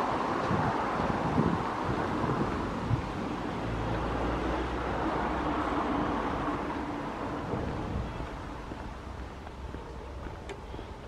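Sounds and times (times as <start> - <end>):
wind buffeting microphone: 0.0 - 11.0
distant engine hum: 2.2 - 11.0.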